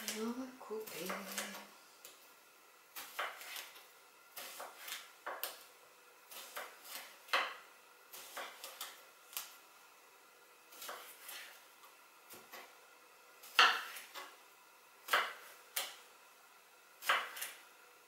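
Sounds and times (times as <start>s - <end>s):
knife chopping on wooden board: 3.0s - 3.8s, 4.4s - 5.6s, 6.3s - 7.6s, 8.2s - 9.0s, 10.8s - 11.5s, 13.4s - 14.3s, 15.1s - 16.0s, 17.0s - 17.6s.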